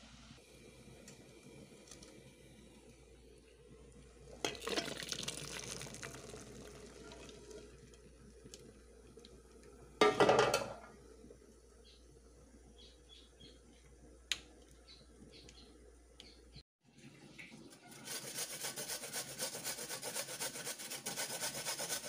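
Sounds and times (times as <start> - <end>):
water pouring into metal bowl: 4.4 - 8.0.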